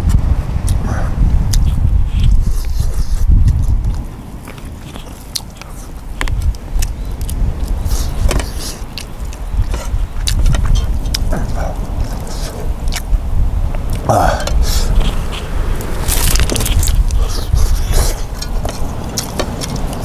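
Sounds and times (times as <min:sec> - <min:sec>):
wind buffeting microphone: 0:00.0 - 0:20.0
chopsticks clicking while eating: 0:18.1 - 0:20.0.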